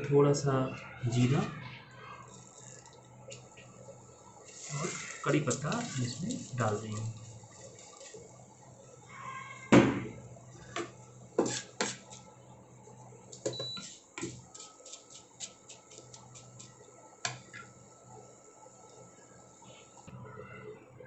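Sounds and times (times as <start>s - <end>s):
cooktop steady hum: 0.0s - 21.0s
spices frying in hot oil: 2.2s - 20.1s
wooden spatula stirring and knocking: 10.6s - 12.3s, 13.3s - 17.5s
induction cooktop beep: 13.4s - 14.0s.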